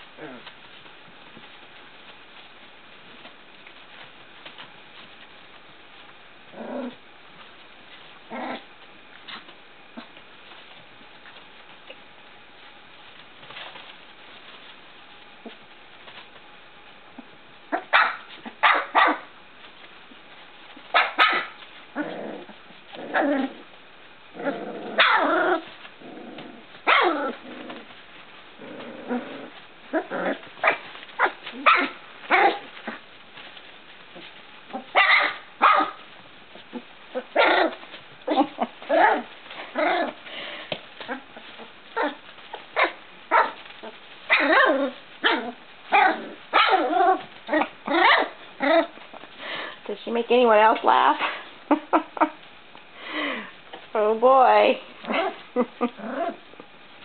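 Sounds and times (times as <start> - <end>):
puppies yipping and barking: 20.8 - 21.6, 29.9 - 33.0, 34.2 - 36.1, 41.0 - 49.0.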